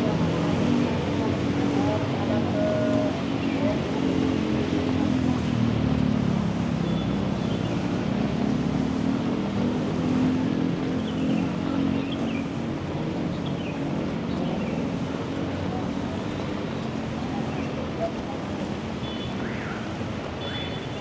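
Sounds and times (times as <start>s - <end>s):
city street traffic: 0.0s - 21.0s.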